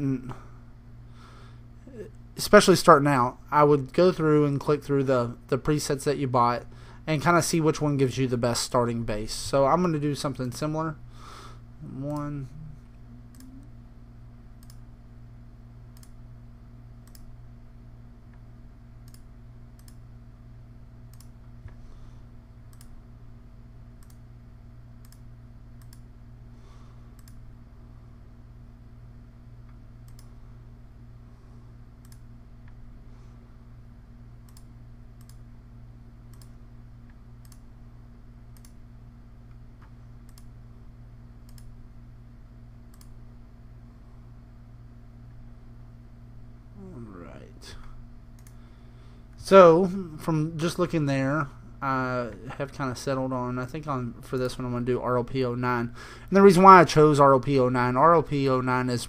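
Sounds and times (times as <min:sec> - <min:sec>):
steady low hum: 0:00.0 - 0:59.0
computer mouse clicking: 0:14.6 - 0:14.8, 0:15.9 - 0:16.2, 0:17.0 - 0:17.3, 0:19.0 - 0:20.0, 0:21.1 - 0:21.8, 0:22.7 - 0:22.9, 0:24.0 - 0:24.2, 0:25.0 - 0:26.1, 0:27.2 - 0:27.4, 0:29.7 - 0:30.3, 0:32.0 - 0:32.8, 0:34.4 - 0:35.4, 0:36.3 - 0:37.7, 0:38.5 - 0:38.8, 0:39.5 - 0:40.5, 0:41.4 - 0:41.7, 0:42.9 - 0:43.2, 0:48.4 - 0:48.6.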